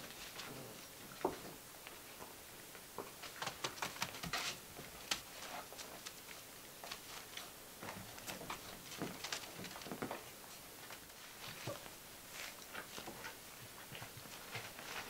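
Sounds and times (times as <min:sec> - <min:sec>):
puppies scuffling: 0:00.0 - 0:15.0.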